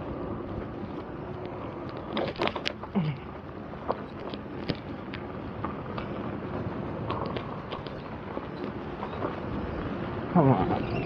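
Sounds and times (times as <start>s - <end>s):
tyre and road noise: 0.0s - 11.0s
wind on microphone: 0.0s - 11.0s.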